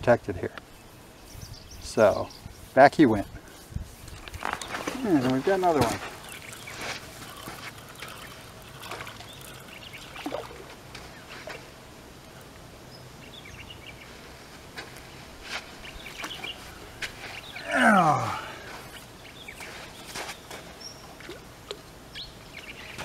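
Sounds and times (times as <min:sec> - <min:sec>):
fish splashing in water: 0:06.2 - 0:10.7.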